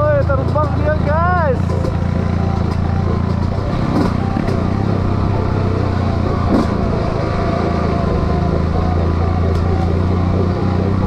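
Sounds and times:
dirt bike engine running: 0.0s - 11.0s.

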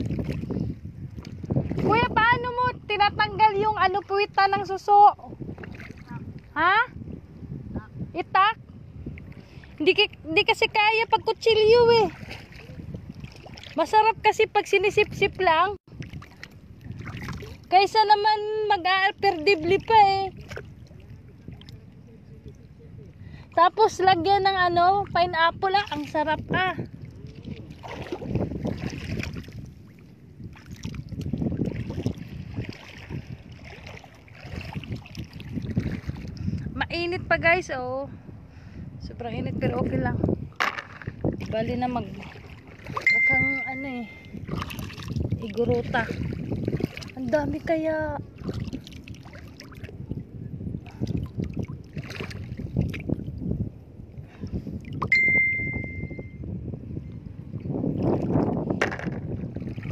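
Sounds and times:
seawater sloshing and splashing: 0.0s - 2.5s, 3.4s - 6.8s, 11.4s - 22.0s, 24.7s - 36.6s, 40.4s - 53.6s, 57.4s - 59.9s
wind buffeting microphone: 0.0s - 59.9s
high beep: 43.0s - 44.4s, 55.0s - 56.4s.

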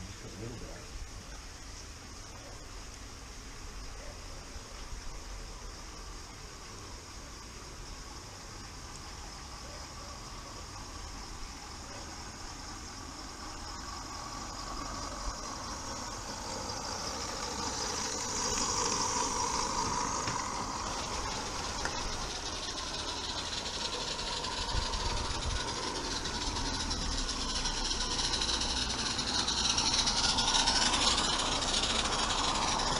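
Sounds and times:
steam hissing: 0.0s - 32.9s
wagon wheels running on track: 8.8s - 32.9s.

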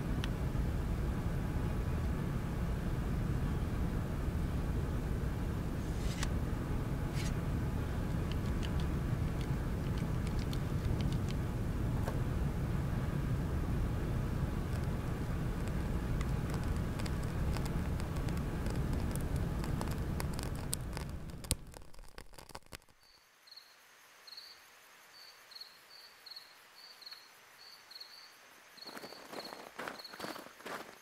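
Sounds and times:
paper fire roaring and crackling: 0.0s - 23.0s
crickets chirping: 6.8s - 21.8s, 22.8s - 31.0s.

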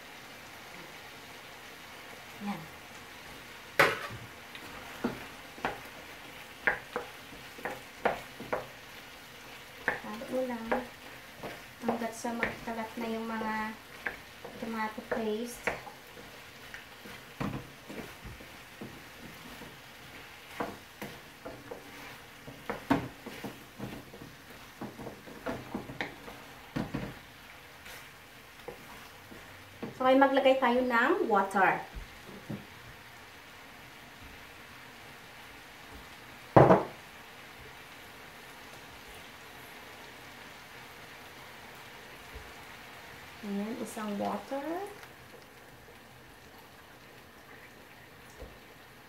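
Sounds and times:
food sizzling in a pan: 0.0s - 49.0s
wooden spoon scraping a pan: 3.2s - 32.7s.

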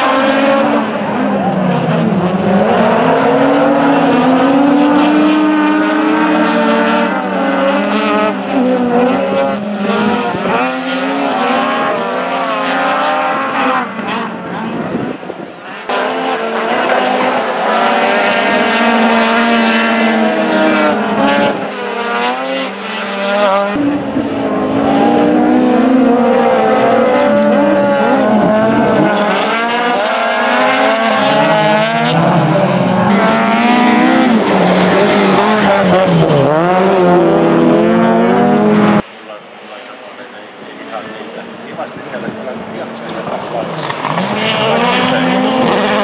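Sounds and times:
race car engines revving: 0.0s - 46.0s.

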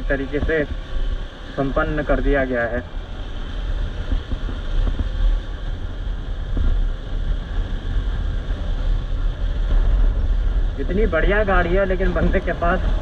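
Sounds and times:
motorcycle engine rumbling: 0.0s - 13.0s
wind buffeting microphone: 0.0s - 13.0s.

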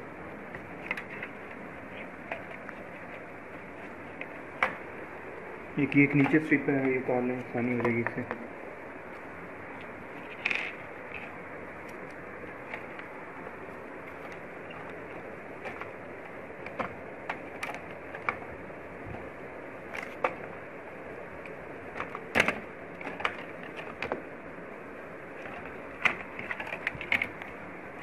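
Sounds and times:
steady hiss: 0.0s - 28.0s.

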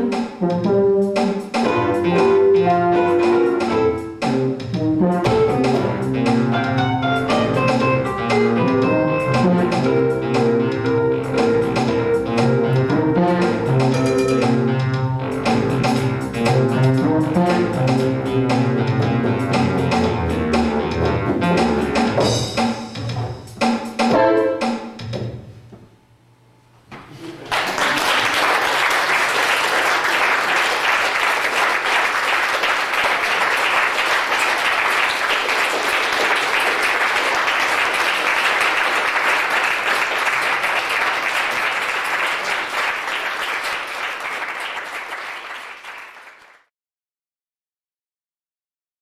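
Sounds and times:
guitar and synthesizer tones: 5.3s - 15.9s
audience applause: 27.3s - 46.7s.

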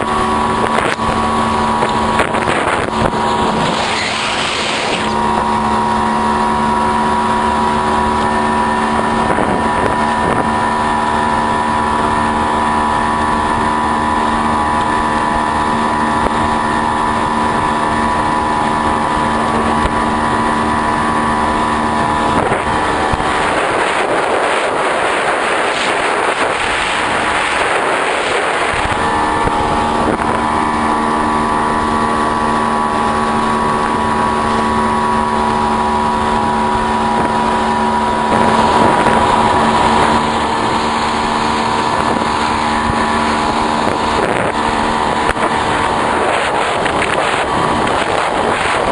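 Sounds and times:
motorboat engine running: 0.0s - 48.9s
water noise: 0.0s - 48.9s
wind: 0.0s - 48.9s
rushing noise: 2.3s - 5.6s.

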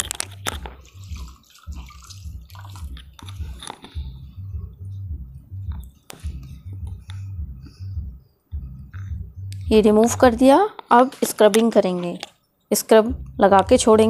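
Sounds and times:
low pulsing thump: 0.2s - 10.5s, 13.1s - 14.0s
damp pad rubbing on skin: 0.6s - 3.9s.

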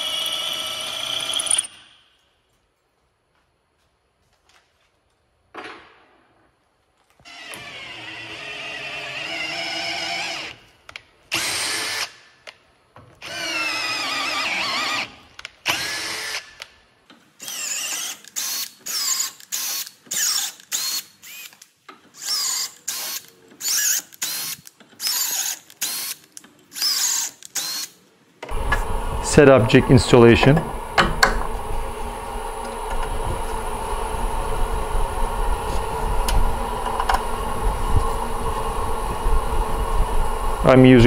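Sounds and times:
cordless drill tapping metal: 30.4s - 31.6s.

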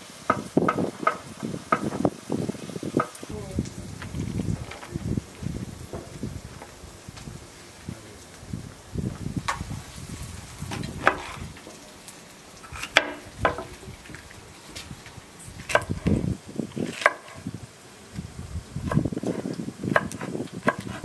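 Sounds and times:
hand scraping mushrooms into metal tray: 10.7s - 11.9s.

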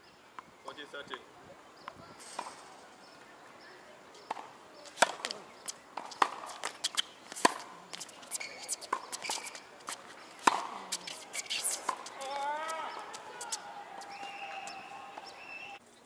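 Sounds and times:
shoes squeaking on hard court: 4.1s - 15.8s
racket hitting tennis ball: 4.2s - 15.4s.

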